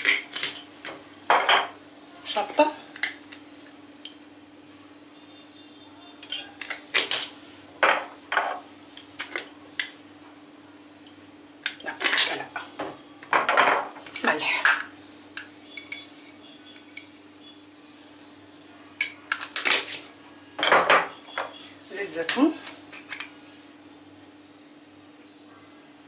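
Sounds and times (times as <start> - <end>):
faint steady hum: 0.0 - 26.0
glass jars clinking: 6.2 - 6.8.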